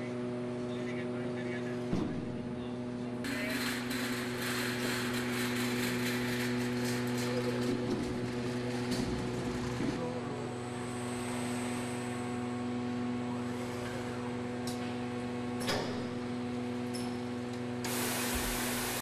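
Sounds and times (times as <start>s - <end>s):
robot station mechanical hum: 0.0s - 19.0s
loud burst of hiss: 17.9s - 19.0s.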